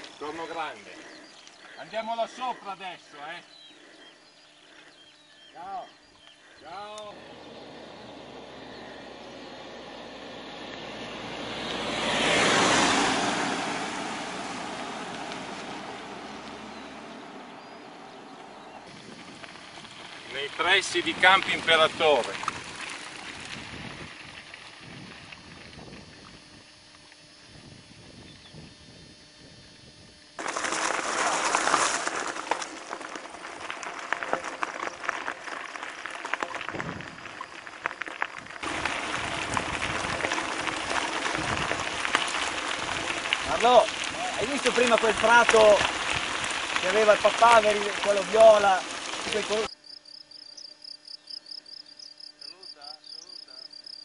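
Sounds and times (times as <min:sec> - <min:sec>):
stones and bike rattling: 0:00.0 - 0:26.3, 0:30.4 - 0:49.8
bike tyres rushing on gravel: 0:00.0 - 0:26.8, 0:30.4 - 0:49.8
car passing by: 0:07.1 - 0:18.8.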